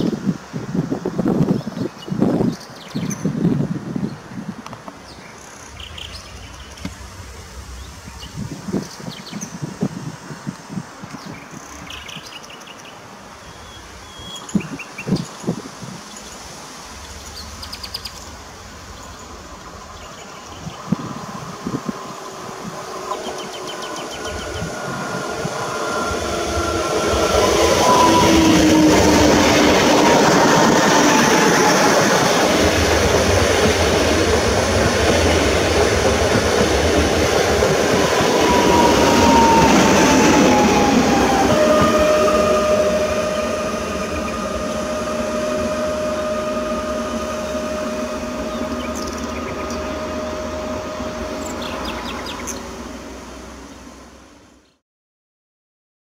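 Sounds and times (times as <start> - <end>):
train wheels rushing on rails: 0.0 - 54.4
electric traction whine: 20.7 - 54.3.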